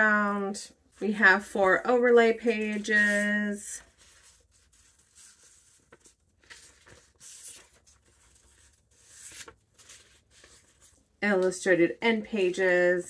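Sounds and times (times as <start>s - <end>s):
book pages being turned: 1.0s - 11.1s.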